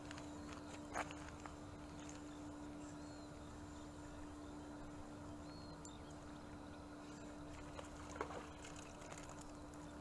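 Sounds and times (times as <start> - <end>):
steady low hum: 0.0 - 10.0
water lapping: 7.3 - 9.9.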